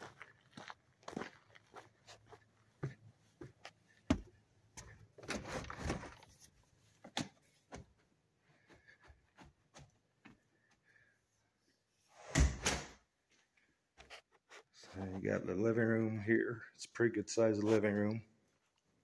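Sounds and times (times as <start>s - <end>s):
footsteps on wooden deck: 0.0s - 5.1s
door unlatching and opening: 12.2s - 13.0s.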